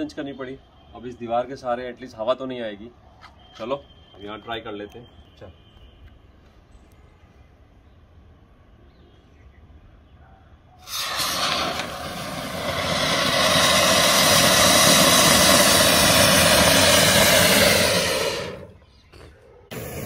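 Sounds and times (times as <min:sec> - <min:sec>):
firework fountain hissing: 0:10.8 - 0:18.8, 0:19.7 - 0:20.0.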